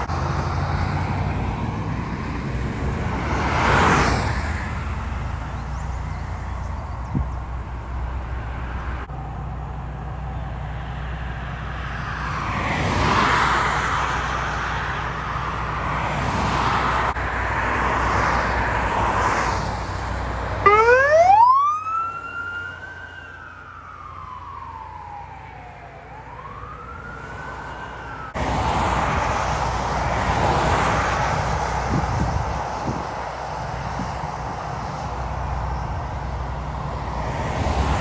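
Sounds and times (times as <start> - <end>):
road traffic noise: 0.0 - 38.0
ambulance siren wailing: 20.6 - 28.4.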